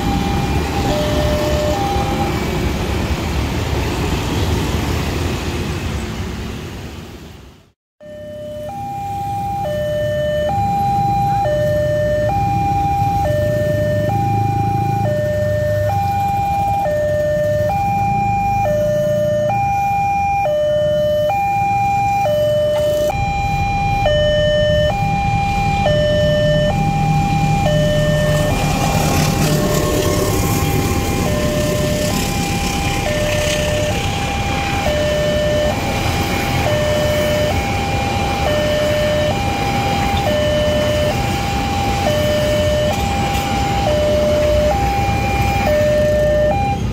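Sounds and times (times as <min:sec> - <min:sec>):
level-crossing alarm high-low tones: 0:00.0 - 0:02.7, 0:08.0 - 0:46.9
passing passenger train: 0:00.0 - 0:07.7, 0:22.7 - 0:46.9
motorcycles idling: 0:22.6 - 0:46.6.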